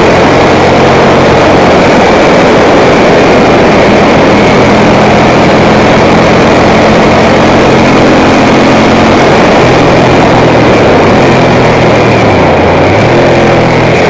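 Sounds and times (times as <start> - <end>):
motorcycle engine running at speed: 0.0 - 14.0
wind rush on microphone: 0.0 - 14.0.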